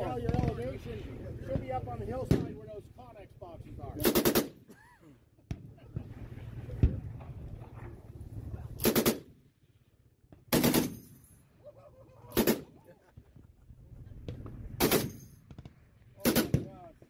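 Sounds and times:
heavy machine gun bursts: 10.5 - 11.0.

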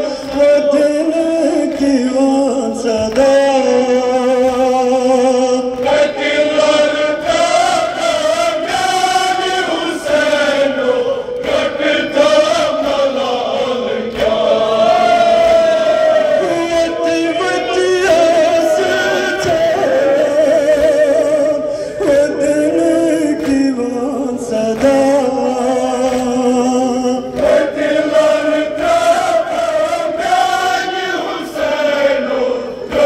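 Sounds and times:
men chanting a lament: 0.0 - 33.0
hands slapping chests: 11.4 - 14.5.

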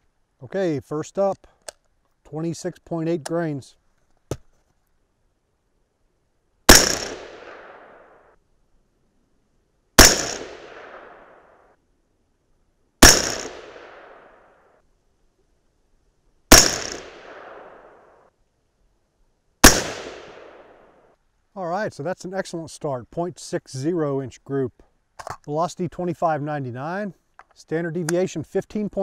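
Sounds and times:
suppressed rifle shots with echo: 6.7 - 8.4, 10.0 - 11.7, 13.0 - 14.5, 16.5 - 18.3, 19.6 - 21.0.

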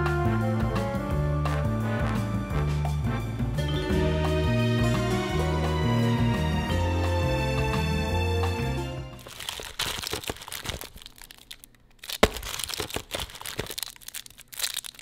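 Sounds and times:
background music: 0.0 - 9.4
candy wrappers crinkling: 9.2 - 15.0.

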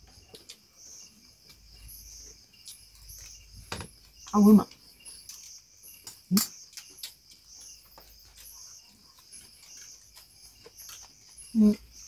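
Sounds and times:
crickets chirping: 0.0 - 12.0
small eating clicks: 0.0 - 12.0.

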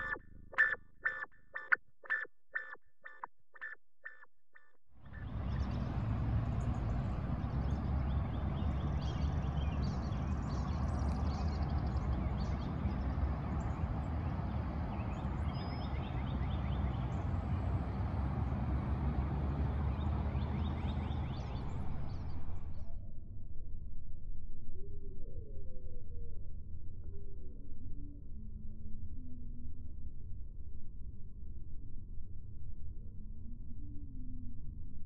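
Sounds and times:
birds chirping: 0.0 - 12.6
low rumbling noise: 0.0 - 15.6.

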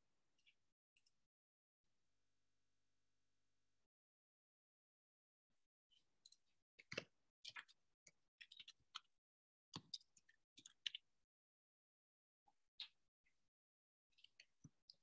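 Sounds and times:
faint irregular clicks and taps: 5.9 - 11.1, 12.5 - 13.4, 14.1 - 15.0.

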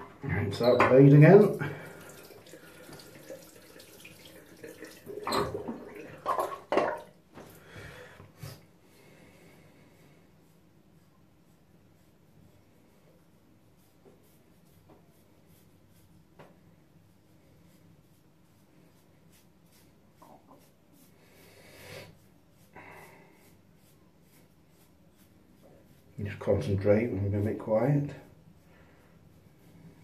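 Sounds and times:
razor scraping scalp: 17.6 - 27.5.

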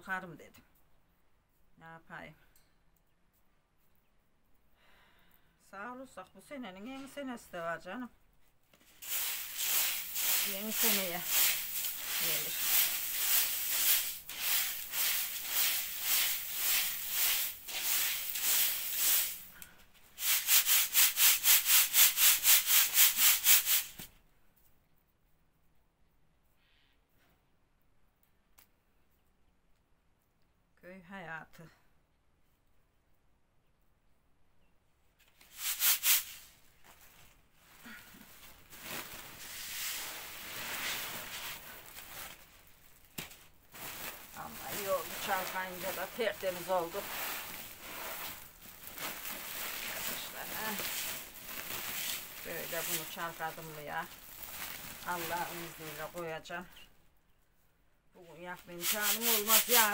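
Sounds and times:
grain swishing in shaken sieve: 8.8 - 24.1, 35.4 - 43.1, 43.7 - 56.5, 58.3 - 59.9
grain rubbed by hand in sieve: 8.9 - 24.0, 35.4 - 42.5, 43.8 - 56.5, 58.6 - 59.9.

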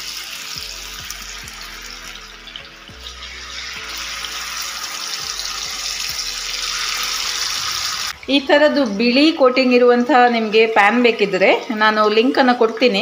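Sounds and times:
fish sizzling in a frying pan: 0.0 - 9.2.

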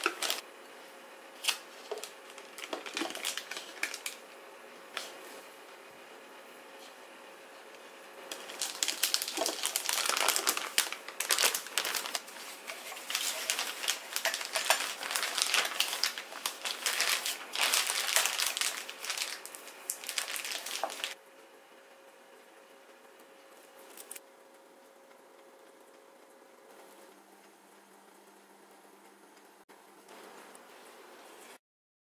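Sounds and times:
plastic piping bag crinkling: 0.0 - 0.4, 1.4 - 4.3, 8.3 - 21.2.

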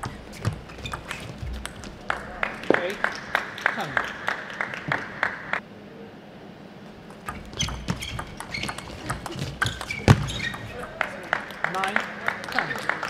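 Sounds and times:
shoes squeaking on floor: 0.0 - 3.1, 7.1 - 11.0
table tennis ball hits: 7.1 - 12.7.

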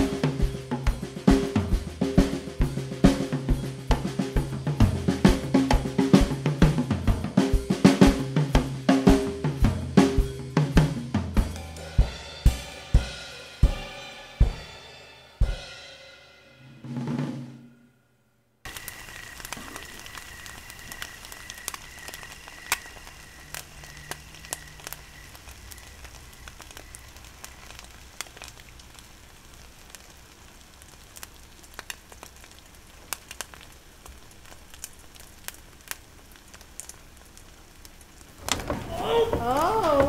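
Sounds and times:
crackling hiss with sharp pops: 0.0 - 15.7, 18.6 - 40.0.

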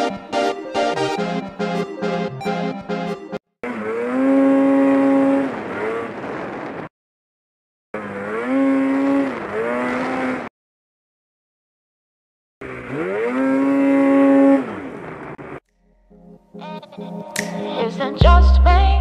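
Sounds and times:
snowmobile engine revving: 3.6 - 6.7, 8.0 - 10.5, 12.6 - 15.6.

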